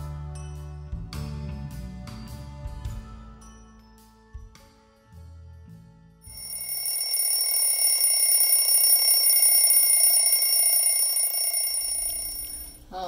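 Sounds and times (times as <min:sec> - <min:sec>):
high bell-like ringing: 0:06.3 - 0:12.8.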